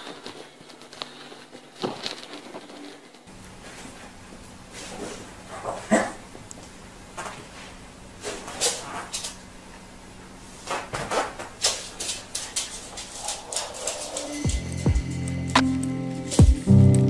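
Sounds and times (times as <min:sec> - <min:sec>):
parrot feet tapping on tiles: 0:00.0 - 0:03.0
dog claws clicking on tiles: 0:11.4 - 0:14.8.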